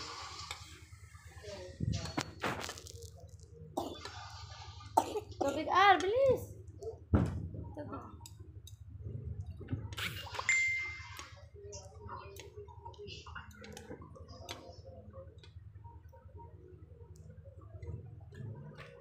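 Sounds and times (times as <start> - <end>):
steady low hum: 6.5 - 19.0
tableware clink: 10.4 - 11.1.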